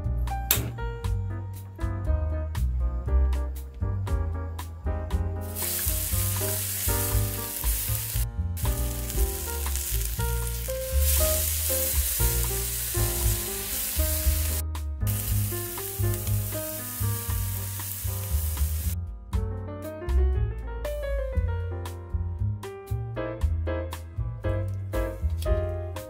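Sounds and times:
meat sizzling in hot oil: 0:05.4 - 0:19.0
tongs turning meat: 0:05.5 - 0:18.9.

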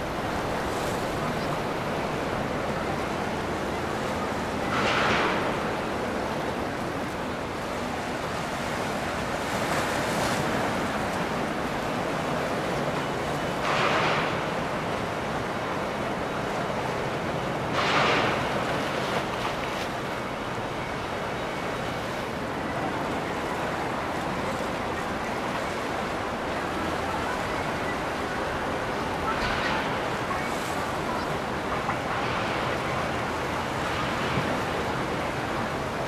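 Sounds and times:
water rushing: 0:00.0 - 0:36.0
water splashes: 0:00.0 - 0:36.0.

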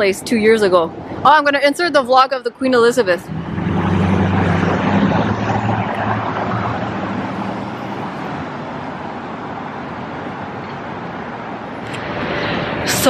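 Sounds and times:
road noise: 0:00.0 - 0:13.0
vehicle engine humming: 0:03.0 - 0:13.0.

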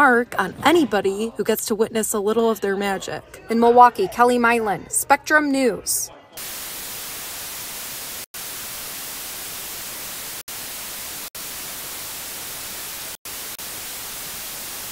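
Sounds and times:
tv static hiss: 0:06.4 - 0:14.9.

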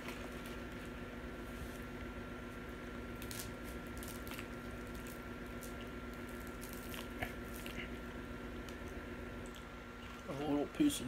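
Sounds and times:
faint steady hum: 0:00.0 - 0:11.0
person chewing food: 0:04.0 - 0:10.3.

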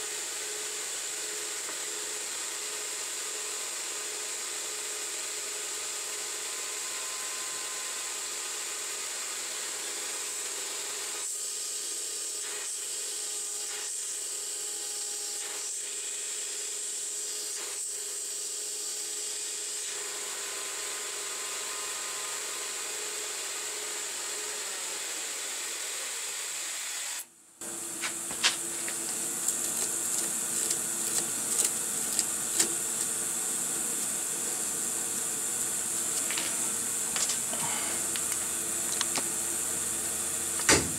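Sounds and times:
coolant sprayer hiss: 0:27.6 - 0:40.9
metal lathe running: 0:27.6 - 0:40.9
file rubbing spinning metal: 0:28.1 - 0:38.1.

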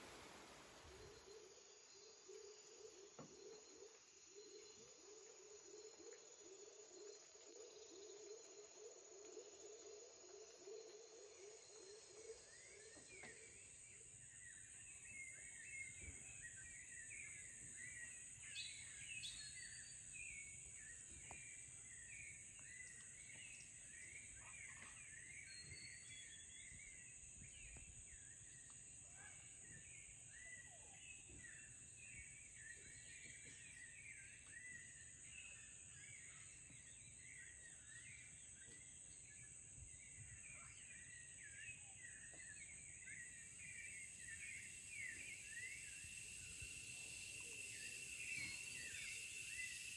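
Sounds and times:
high insect drone: 0:39.2 - 0:49.9.

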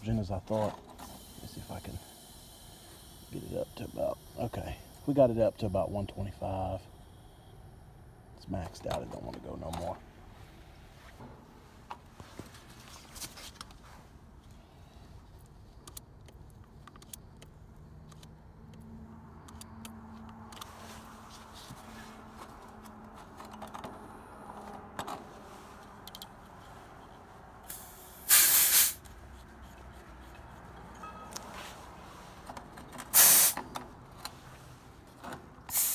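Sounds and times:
short loud hiss: 0:27.7 - 0:29.0, 0:33.1 - 0:33.6.

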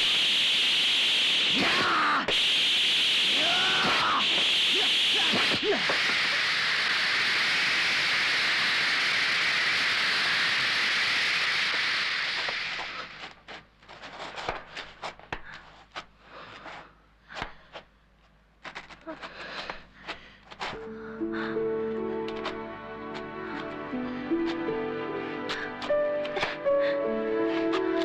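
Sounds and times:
loud steady hissing: 0:00.0 - 0:13.7.

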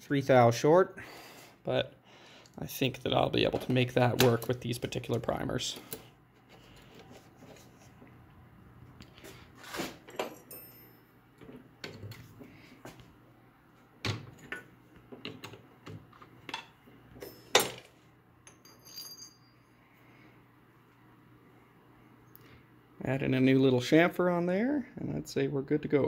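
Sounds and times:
metallic clinks and knocks: 0:10.1 - 0:12.1, 0:16.5 - 0:19.8
high metallic ring: 0:10.2 - 0:11.3, 0:18.4 - 0:19.8.

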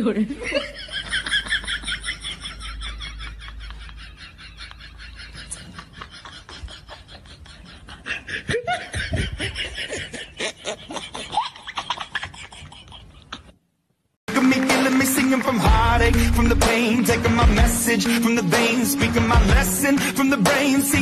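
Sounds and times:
boys laughing: 0:00.3 - 0:13.6
pop music with singing: 0:14.3 - 0:21.0.

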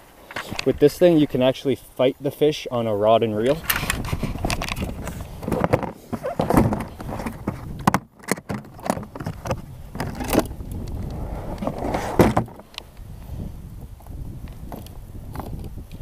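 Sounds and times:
plastic lid and tray clacking: 0:03.7 - 0:10.5, 0:11.6 - 0:12.6.

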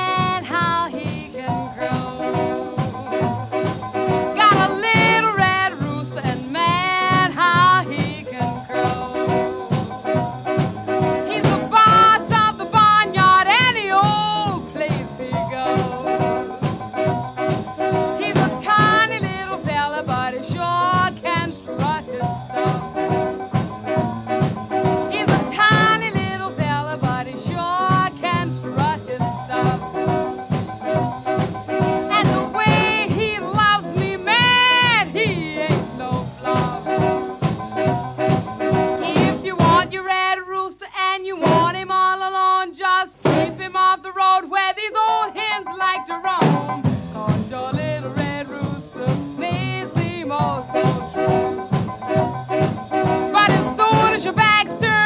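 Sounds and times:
trombone sliding melody: 0:00.0 - 0:40.1, 0:45.7 - 0:55.0
jump blues band with brass: 0:00.0 - 0:40.4, 0:41.3 - 0:55.0.

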